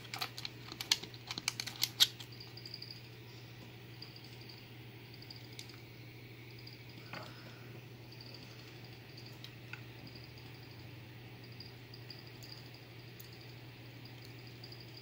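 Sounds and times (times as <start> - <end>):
lock pins clicking: 0.0 - 2.3
faint steady hum: 0.0 - 15.0.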